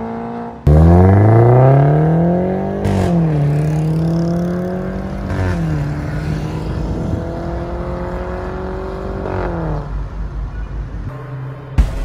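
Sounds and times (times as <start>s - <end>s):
car engine accelerating past: 0.0s - 9.9s.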